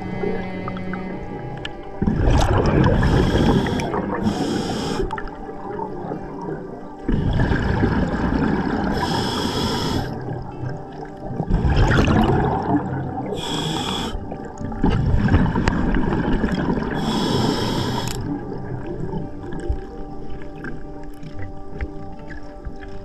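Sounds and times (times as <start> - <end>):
gurgling exhaust bubbles: 2.0 - 4.4, 5.1 - 9.2, 9.8 - 13.5
diver breathing through regulator: 2.7 - 5.4, 8.3 - 10.4, 13.2 - 14.4, 15.9 - 18.6.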